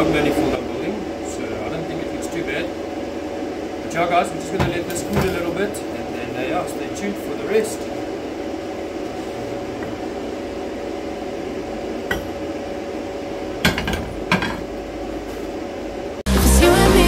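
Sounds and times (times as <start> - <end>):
steady hum: 0.0 - 17.0
loud music: 16.3 - 17.0.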